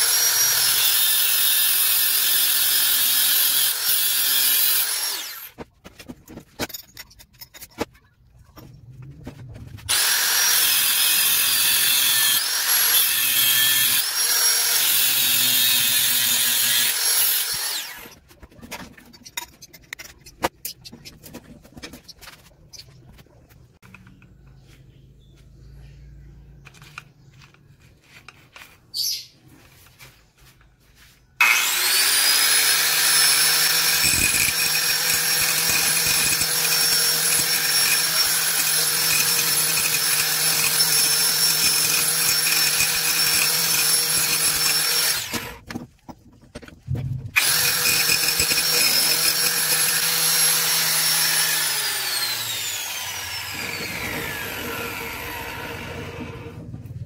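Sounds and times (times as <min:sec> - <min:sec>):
angle grinder cutting steel: 0:00.0 - 0:05.6, 0:09.9 - 0:18.2, 0:31.4 - 0:45.6, 0:47.4 - 0:56.6.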